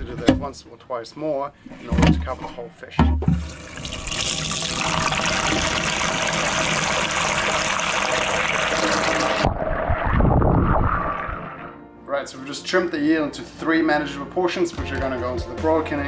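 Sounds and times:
brine pouring and splashing: 3.4 - 11.7.

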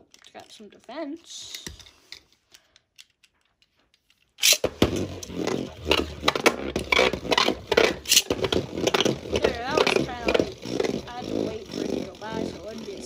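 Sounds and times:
spinning tops scraping plastic: 4.1 - 13.0
spinning top launcher rip: 4.4 - 11.0.

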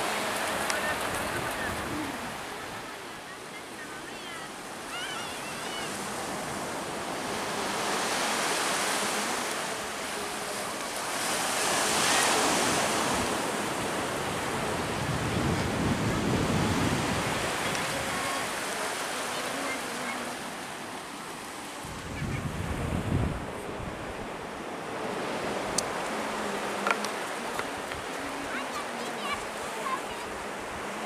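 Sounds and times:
surf washing onto beach: 0.0 - 31.0.

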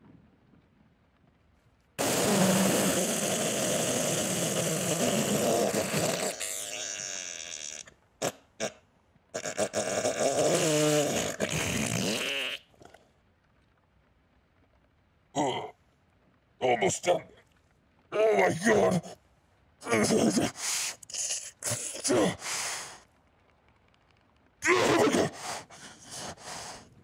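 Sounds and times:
spluttering fart sounds: 2.0 - 8.8, 9.4 - 13.0, 24.6 - 26.8.

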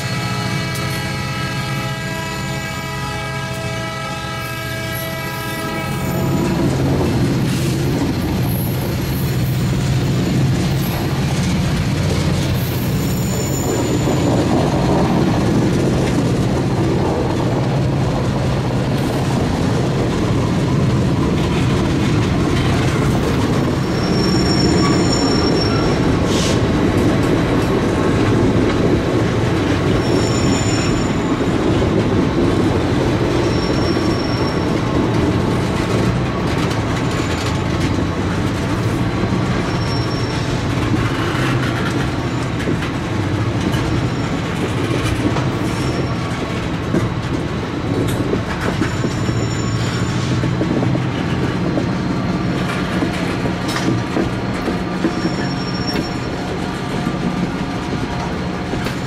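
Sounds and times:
train wheels rumbling on rail: 0.0 - 59.0
wheels clicking over rail joints: 6.5 - 59.0
wheel flange squeals: 12.5 - 14.5, 23.6 - 26.6, 29.9 - 31.5, 33.4 - 34.9, 39.6 - 41.7, 48.6 - 51.5, 54.6 - 56.5.

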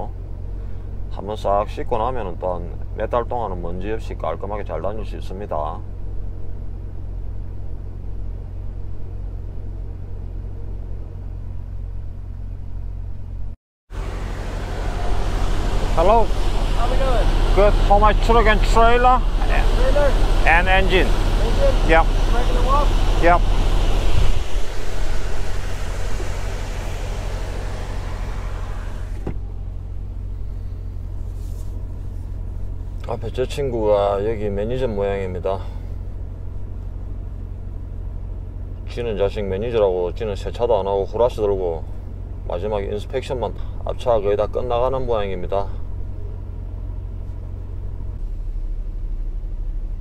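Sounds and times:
diesel engine idling: 0.0 - 50.0
hiss from outside: 13.9 - 33.0.

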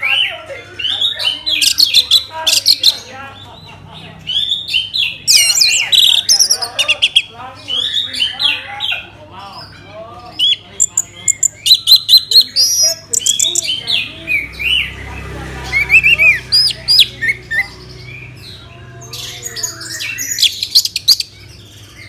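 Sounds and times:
thrush singing: 10.3 - 22.0.

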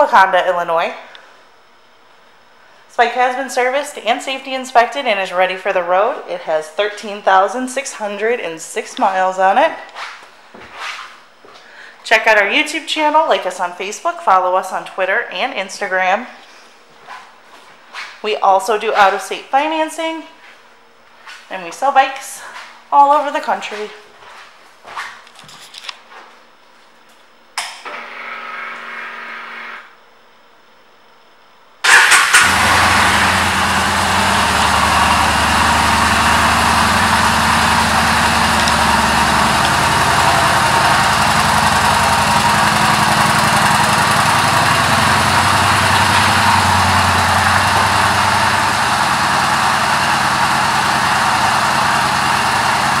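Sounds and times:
motorcycle engine starting and idling: 31.8 - 53.0.

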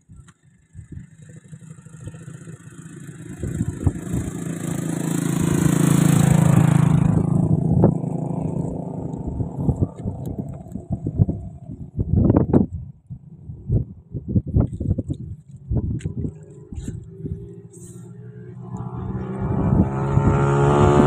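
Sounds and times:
motor engine passing: 1.0 - 12.0, 16.0 - 21.0.

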